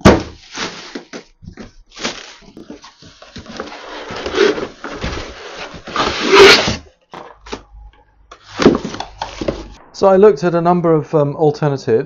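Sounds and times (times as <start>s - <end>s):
cardboard scraping and rubbing: 2.0s - 6.8s.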